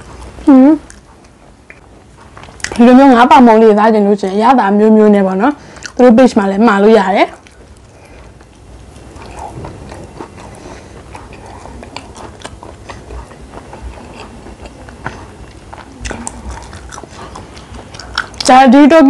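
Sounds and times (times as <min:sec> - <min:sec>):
person chewing food: 0:00.0 - 0:02.8, 0:07.3 - 0:18.6.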